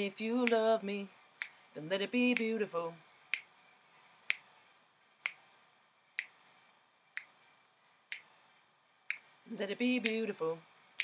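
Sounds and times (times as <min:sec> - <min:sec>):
a cappella singing: 0:00.0 - 0:01.1, 0:01.8 - 0:03.0, 0:09.5 - 0:10.6
finger snaps: 0:00.4 - 0:00.6, 0:01.4 - 0:01.6, 0:02.3 - 0:02.6, 0:03.3 - 0:03.5, 0:04.2 - 0:04.5, 0:05.2 - 0:05.4, 0:06.2 - 0:06.4, 0:07.2 - 0:07.4, 0:08.1 - 0:08.3, 0:09.1 - 0:09.3.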